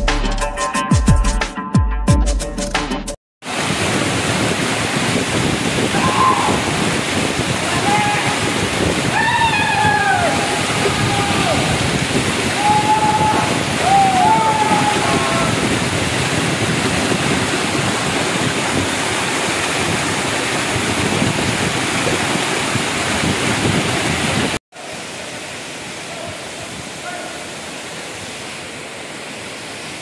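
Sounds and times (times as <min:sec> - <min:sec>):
waterfall pouring onto rock: 0:03.4 - 0:24.6.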